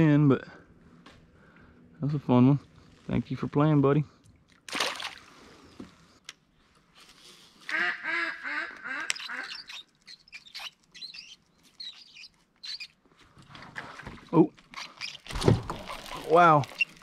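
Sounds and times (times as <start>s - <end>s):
duck quacking: 7.7s - 9.8s.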